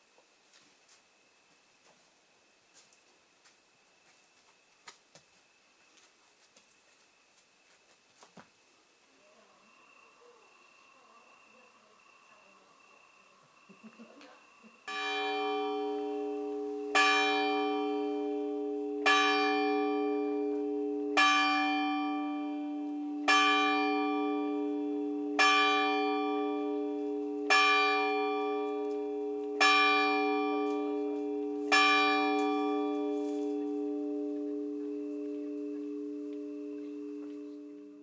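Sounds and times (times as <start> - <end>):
church bell tolling: 14.9 - 38.0.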